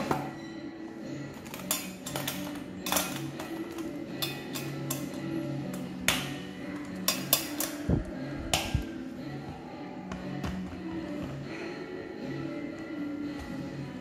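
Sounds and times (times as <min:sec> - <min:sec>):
background music: 0:00.0 - 0:14.0
metal lunch box clicks: 0:01.5 - 0:05.1.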